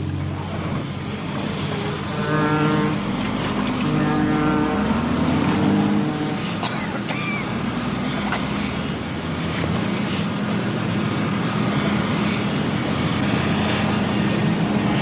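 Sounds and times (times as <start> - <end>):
boat engine running: 0.0 - 6.8.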